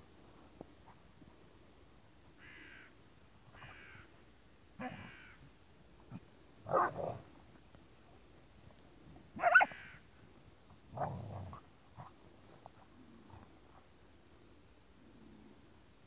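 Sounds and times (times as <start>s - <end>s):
crow cawing: 2.4s - 2.9s, 3.6s - 4.1s, 4.9s - 5.4s.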